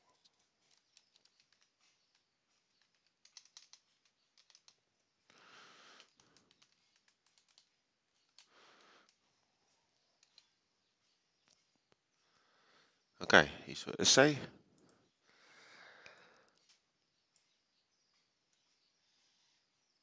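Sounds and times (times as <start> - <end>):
typing on computer keyboard: 0.3 - 4.8, 5.9 - 8.5.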